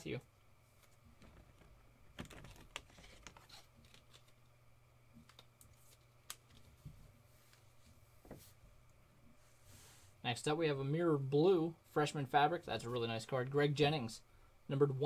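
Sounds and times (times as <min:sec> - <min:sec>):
cards in plastic sleeves rustling: 0:00.8 - 0:04.5.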